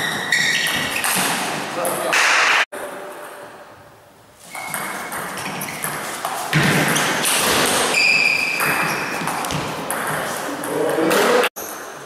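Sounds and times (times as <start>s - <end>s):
shoes squeaking on floor: 0.0s - 1.7s, 4.4s - 10.6s.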